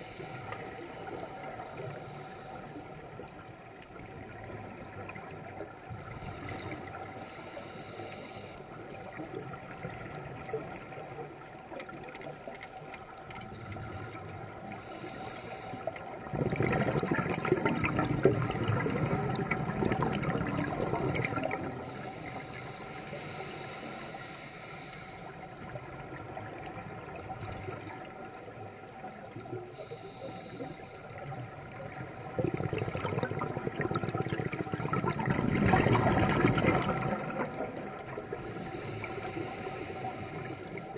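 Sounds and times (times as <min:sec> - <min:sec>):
faint underwater hissing: 0:00.0 - 0:03.7, 0:05.8 - 0:40.9
underwater regulator bubbles: 0:04.1 - 0:24.1, 0:29.4 - 0:40.9.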